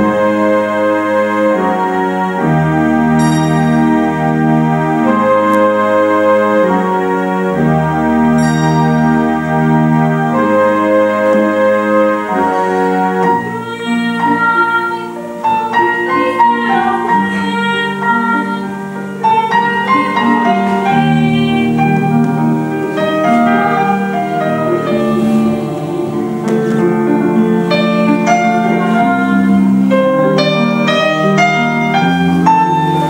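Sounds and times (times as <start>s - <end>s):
piano and keyboard chords: 0.0s - 33.0s
melody line: 21.4s - 29.8s.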